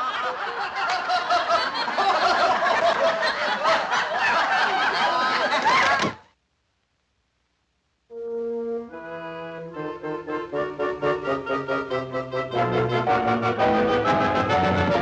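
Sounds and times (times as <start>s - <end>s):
crowd chuckling: 0.0s - 6.3s.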